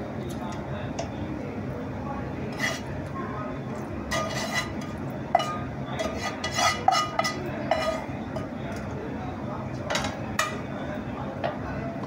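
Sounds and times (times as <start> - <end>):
spatula scraping metal pan: 2.5 - 2.9, 4.1 - 8.5.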